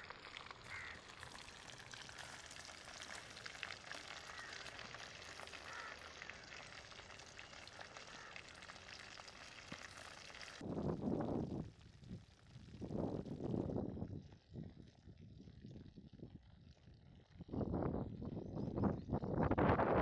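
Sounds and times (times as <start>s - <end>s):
crackling sizzle of frying in oil: 0.0s - 15.2s.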